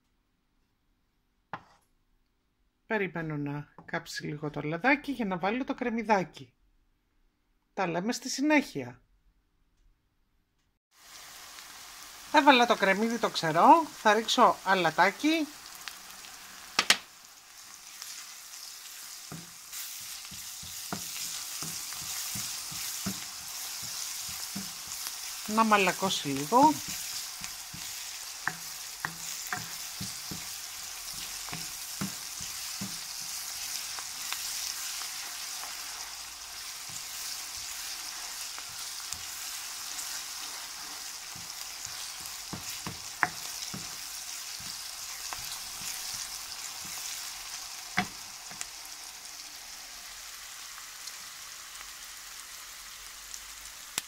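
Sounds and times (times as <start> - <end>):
wooden spoon scraping a pan: 1.6 - 1.9, 17.9 - 48.6
onion sizzling in frying pan: 10.9 - 54.0.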